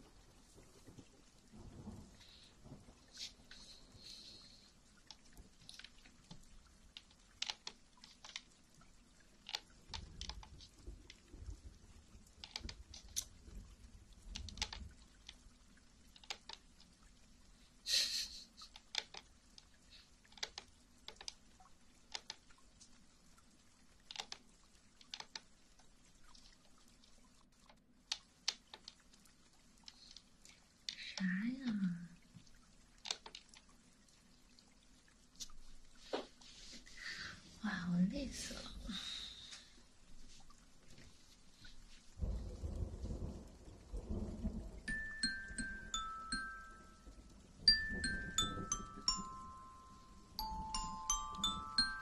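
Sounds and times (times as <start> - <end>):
light clicks and taps: 5.0 - 8.6, 9.4 - 13.4, 14.3 - 15.4, 18.6 - 21.4, 22.1 - 23.0, 24.0 - 29.1, 29.8 - 33.7.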